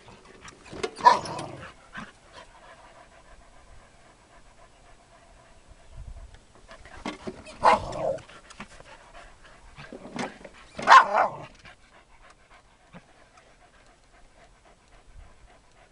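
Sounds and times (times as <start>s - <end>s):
dogs panting: 0.0s - 15.9s
loud dog vocal outbursts: 1.0s - 1.8s, 7.5s - 8.3s, 10.8s - 11.6s.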